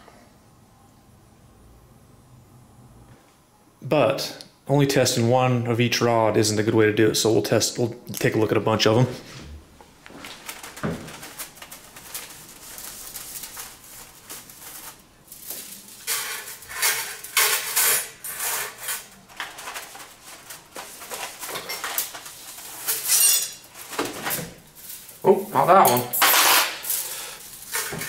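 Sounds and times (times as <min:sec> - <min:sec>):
metal rods rattling and clinking: 0:14.7 - 0:24.0, 0:25.8 - 0:28.0.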